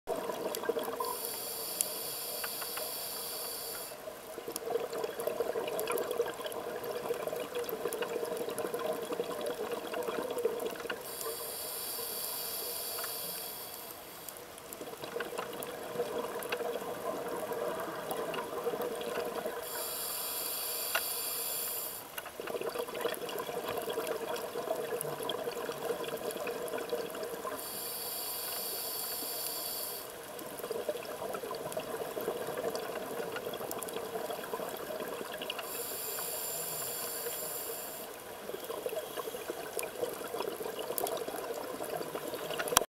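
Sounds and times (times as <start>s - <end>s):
bubbles gurgling: 0.1s - 1.1s, 4.4s - 11.0s, 14.8s - 19.6s, 22.4s - 27.5s
regulator inhalation hiss: 1.0s - 4.0s, 11.0s - 14.3s, 19.6s - 22.1s, 27.6s - 30.2s, 35.6s - 38.2s.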